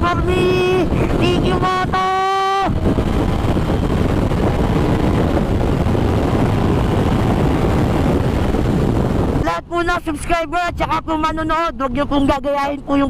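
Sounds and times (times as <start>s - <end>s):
motorcycle engine cruising: 0.0s - 9.4s
wind rushing over microphone: 0.0s - 13.0s.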